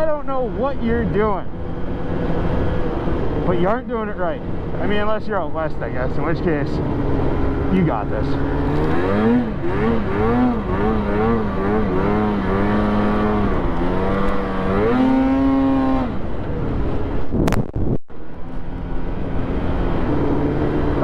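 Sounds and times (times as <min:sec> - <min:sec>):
snowmobile engine revving: 0:05.8 - 0:16.3.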